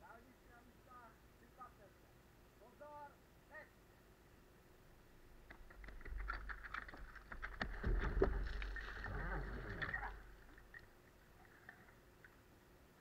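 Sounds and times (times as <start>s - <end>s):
hoses dragged scraping: 7.8s - 10.8s.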